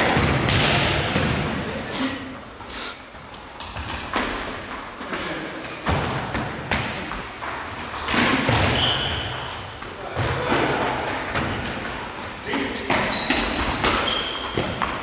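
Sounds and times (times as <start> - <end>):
sneakers squeaking on floor: 0.0 - 0.8, 5.8 - 15.0.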